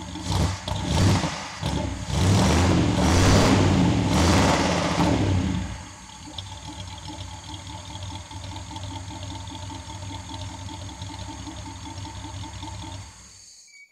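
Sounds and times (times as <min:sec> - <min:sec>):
car engine idling: 0:00.0 - 0:13.5.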